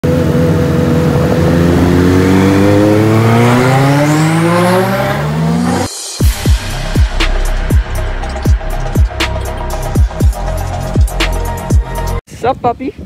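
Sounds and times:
car engine accelerating hard: 0.0s - 11.0s.

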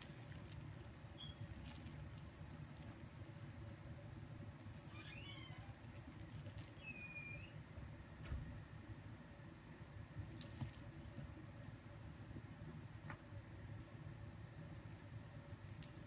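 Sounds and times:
short high squeaks: 1.2s - 1.4s, 4.8s - 5.7s, 6.7s - 7.6s.

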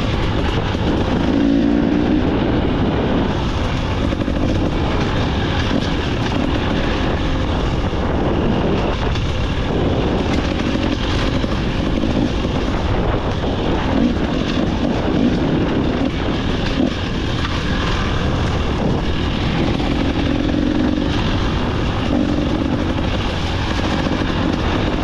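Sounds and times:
two-stroke motorcycle engine revving: 0.0s - 25.0s.

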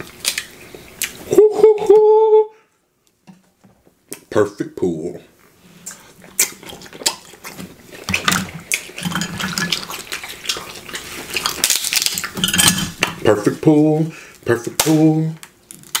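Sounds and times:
wet squelching: 5.7s - 13.3s
crab shells cracking: 8.1s - 13.2s.

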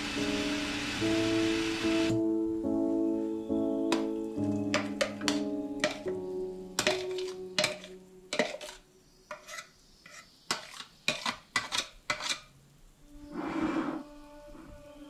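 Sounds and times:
background music: 0.0s - 9.1s, 13.1s - 15.0s
utensils clinking on cookware: 4.7s - 6.2s, 6.8s - 12.5s.

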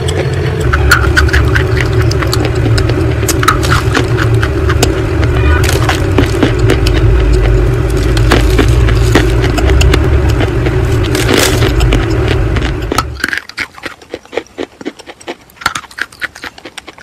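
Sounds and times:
steady low drone: 0.0s - 13.6s
chalk crunching in teeth: 5.6s - 17.0s.

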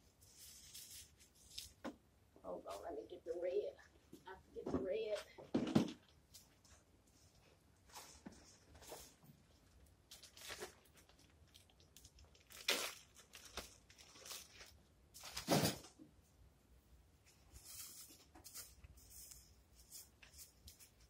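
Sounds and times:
plastic wrap crinkling: 8.4s - 15.5s.

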